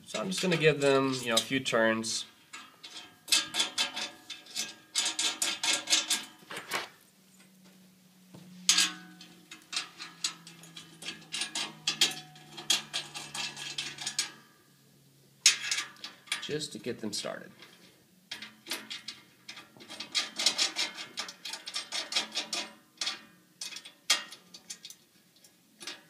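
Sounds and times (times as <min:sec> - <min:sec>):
metal bolts clicking and clinking: 0:02.3 - 0:06.9, 0:08.7 - 0:14.5, 0:15.4 - 0:16.7, 0:17.6 - 0:26.0.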